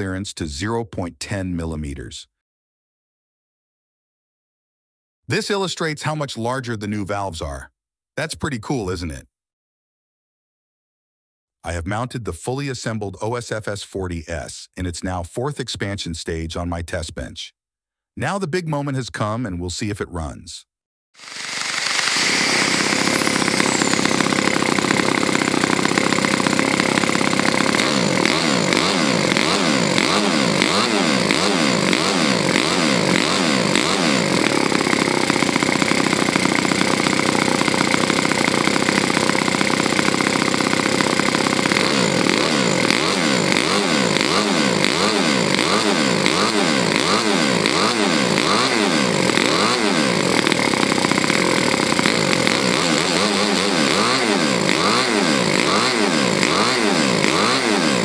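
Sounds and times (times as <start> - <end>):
model engine running at high speed: 21.2 - 58.0.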